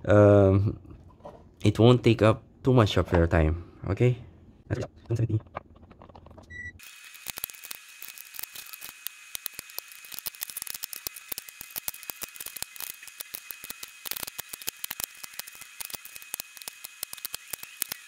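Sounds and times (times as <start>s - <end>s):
battery cells clacking together: 5.1s - 18.0s.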